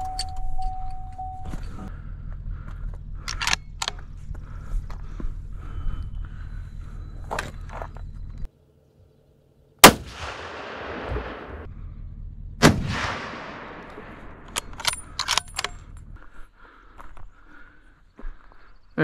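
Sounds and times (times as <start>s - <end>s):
metallic clicks of rifle action: 3.2s - 4.0s, 14.4s - 15.9s
rifle shots echoing: 9.8s - 11.7s, 12.6s - 15.1s.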